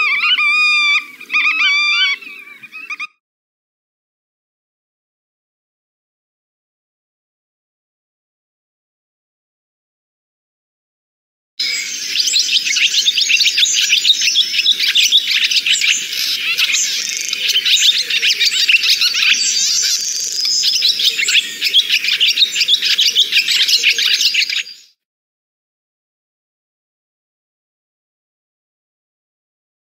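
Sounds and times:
birds chirping and twittering: 0:00.0 - 0:03.1, 0:11.6 - 0:25.0.

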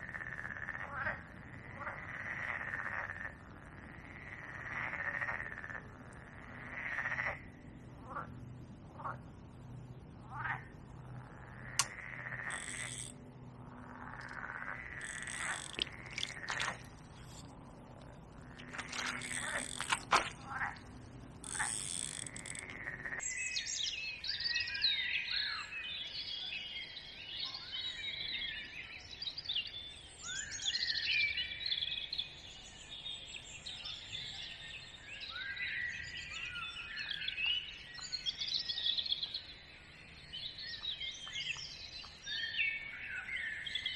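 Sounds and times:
low steady drone: 0:00.0 - 0:23.5
songbirds singing in chorus: 0:00.0 - 0:43.9
handling clicks and rustles: 0:15.1 - 0:22.8.

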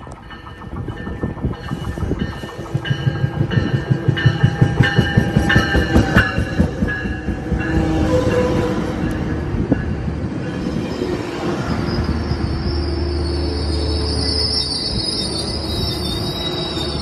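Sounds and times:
train wheels rumbling on rails: 0:00.0 - 0:17.0
high wheel squeal: 0:10.5 - 0:17.0.

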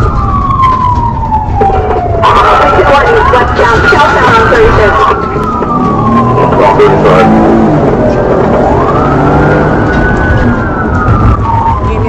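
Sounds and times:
police siren wailing: 0:00.0 - 0:12.0
car engine accelerating hard: 0:05.4 - 0:11.6.

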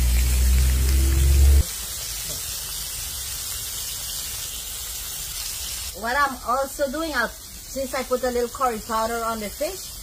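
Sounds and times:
loud low hum: 0:00.0 - 0:01.6
fish sizzling in hot oil: 0:00.0 - 0:10.0.

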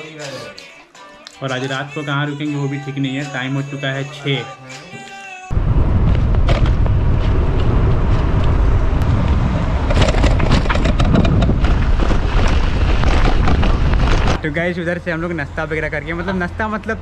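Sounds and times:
wind buffeting microphone: 0:05.5 - 0:14.4.

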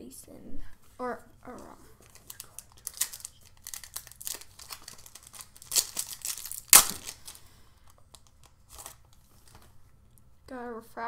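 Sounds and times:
plastic wrapper crackling: 0:01.6 - 0:09.7.

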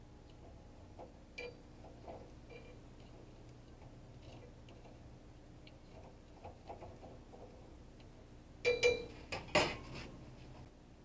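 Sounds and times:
metal cookware clinking: 0:01.4 - 0:03.1, 0:08.6 - 0:09.9.

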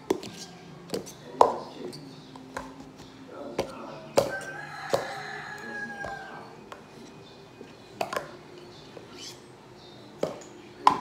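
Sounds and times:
plastic cups clacking: 0:08.0 - 0:08.4.

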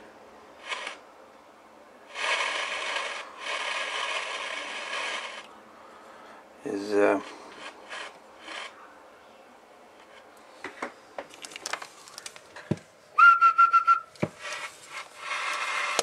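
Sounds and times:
steady whistle: 0:13.2 - 0:14.1.

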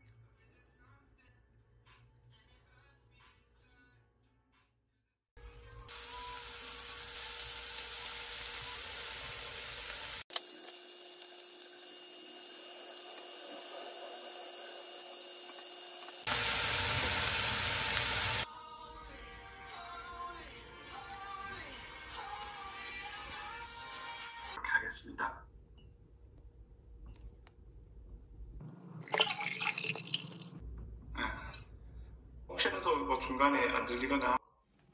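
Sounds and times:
beef sizzling in frying pan: 0:05.9 - 0:18.5.

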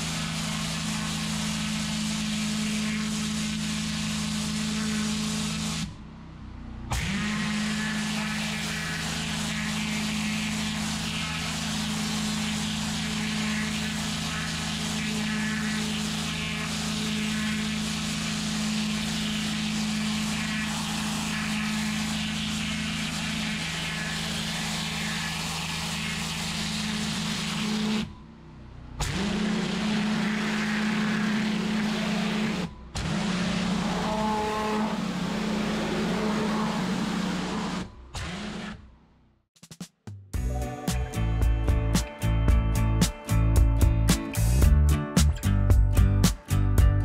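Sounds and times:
pressure washer spray hissing: 0:00.0 - 0:05.9, 0:07.9 - 0:28.0
pressure washer machine hum: 0:00.0 - 0:06.0, 0:06.6 - 0:28.2, 0:28.9 - 0:38.7.

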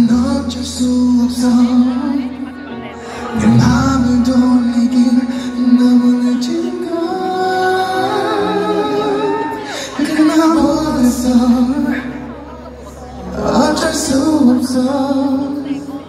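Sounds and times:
amplified backing music: 0:00.0 - 0:16.0
man singing into a microphone: 0:00.0 - 0:16.0.

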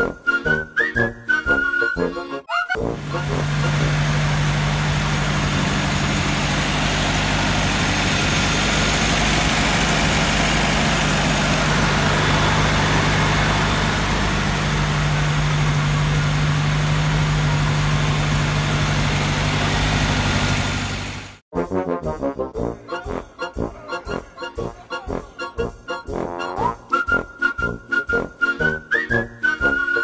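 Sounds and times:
car engine idling: 0:03.0 - 0:21.4.

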